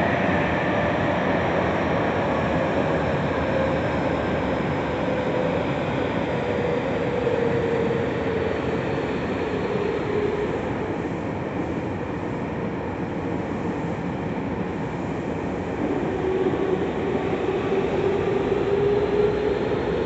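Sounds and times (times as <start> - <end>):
train wheels rumbling: 15.5 - 20.0.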